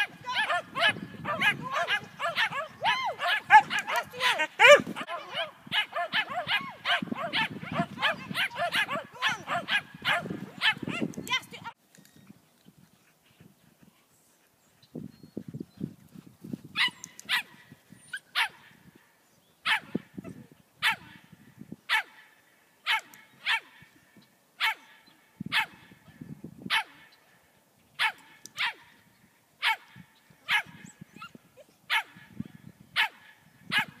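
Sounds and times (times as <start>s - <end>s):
dog barking: 0.4s - 11.0s, 24.6s - 25.8s, 26.7s - 27.0s, 28.0s - 28.8s, 29.6s - 29.9s, 30.5s - 30.8s, 31.9s - 32.2s, 33.0s - 34.0s.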